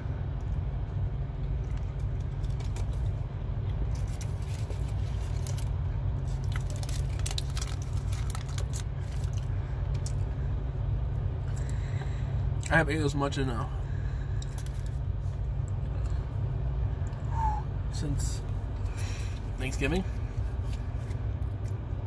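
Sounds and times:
steady low rumble: 0.0s - 22.0s
paper wrapper crinkling: 3.8s - 10.2s.

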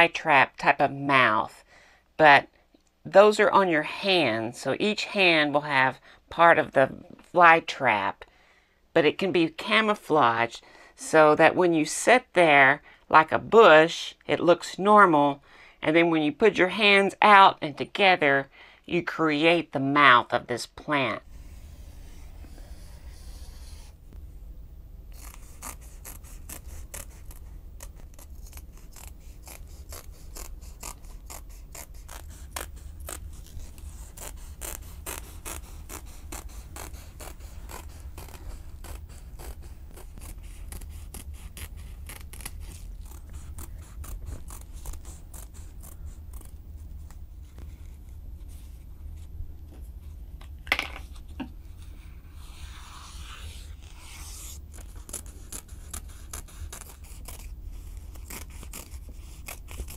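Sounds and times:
scissors cutting foam rubber: 25.1s - 48.0s, 52.4s - 59.9s.

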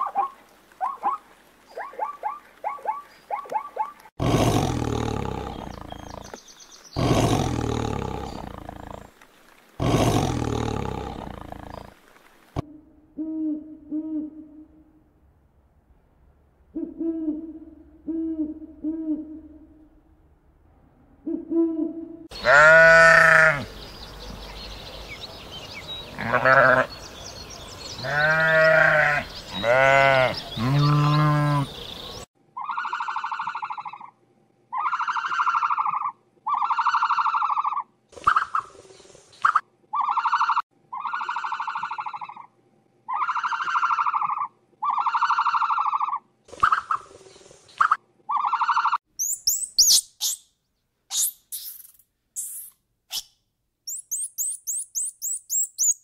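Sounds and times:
bleat-like animal calls: 22.3s - 23.7s, 26.2s - 26.9s, 28.0s - 31.8s
wavering animal cries: 22.3s - 23.7s, 26.2s - 26.9s, 28.0s - 31.8s, 32.6s - 34.1s, 34.7s - 37.9s, 39.9s - 42.5s, 43.1s - 46.2s, 48.3s - 50.4s
high rising chirps: 49.2s - 50.5s, 53.9s - 56.0s.

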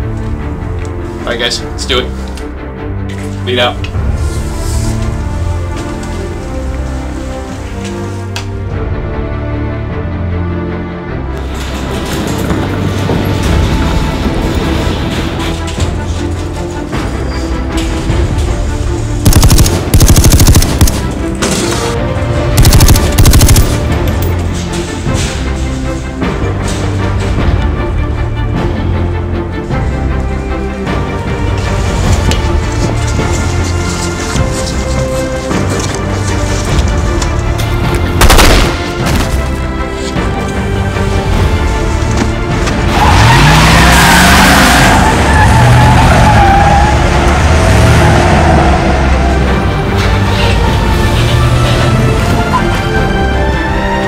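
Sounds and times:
tense film score: 0.0s - 54.0s
automatic rifle fire: 19.2s - 21.1s, 22.6s - 24.0s, 38.2s - 39.3s.

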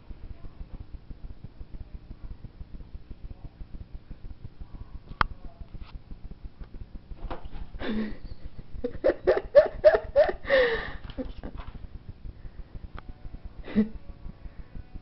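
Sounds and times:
person laughing: 7.8s - 11.6s, 13.6s - 14.0s.

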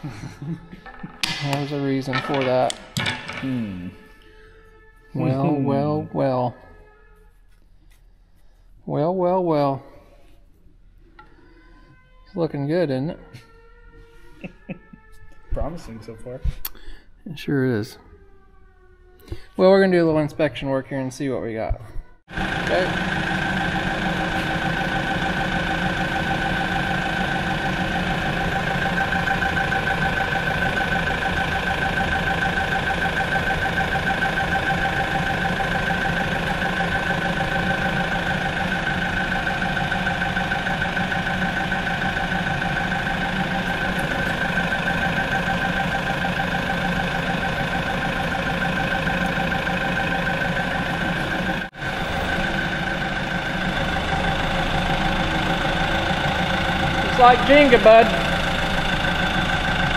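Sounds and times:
engine idling: 22.3s - 59.9s.

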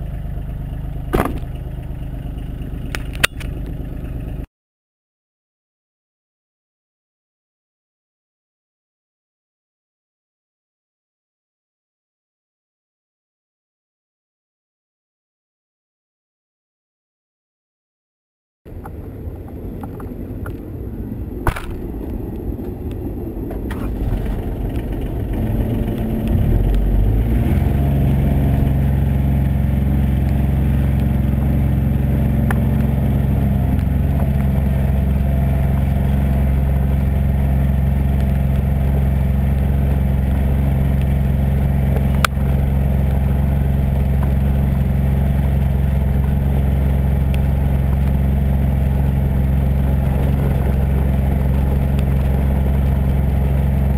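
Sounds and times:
diesel engine running: 0.0s - 4.5s, 18.7s - 53.9s
knocks: 1.1s - 1.5s
sharp click: 2.9s - 3.6s.

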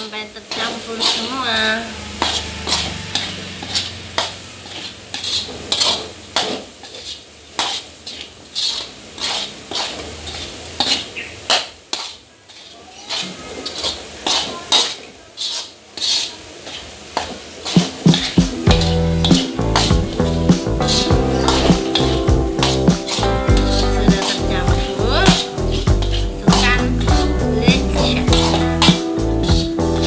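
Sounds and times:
metal spatula scraping a wok: 0.4s - 30.0s.

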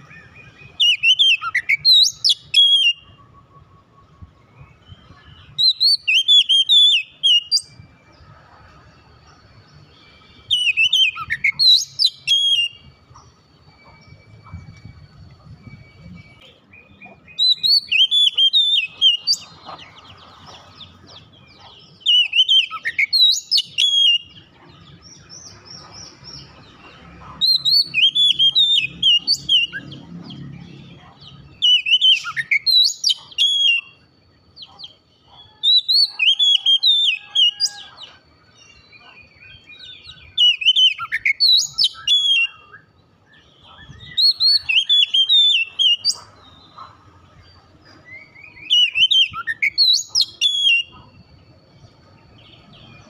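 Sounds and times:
bird singing whistled phrases: 0.0s - 7.8s, 10.0s - 19.6s, 21.6s - 24.5s, 27.4s - 34.1s, 38.8s - 46.9s, 48.1s - 51.2s.

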